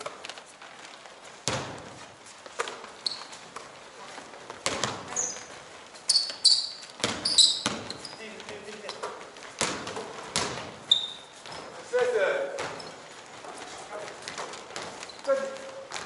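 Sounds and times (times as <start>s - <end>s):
sneakers squeaking on floor: 1.2s - 16.0s
basketball thudding on court floor: 7.0s - 8.0s, 9.6s - 10.8s.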